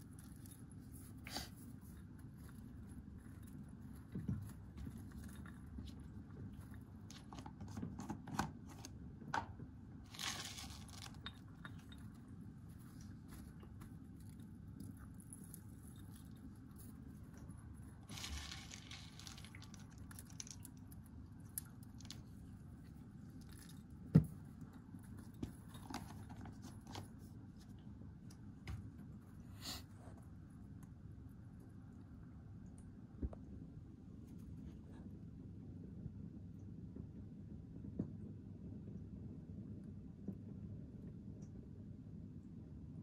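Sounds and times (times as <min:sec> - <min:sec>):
hamster crunching food: 0:00.0 - 0:09.4, 0:10.0 - 0:33.0
rustling: 0:10.1 - 0:20.7.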